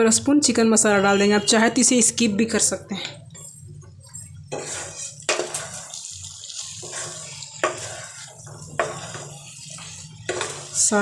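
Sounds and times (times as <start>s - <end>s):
spatula scraping a pan: 4.2s - 11.0s
spatula clattering against pan: 4.5s - 11.0s.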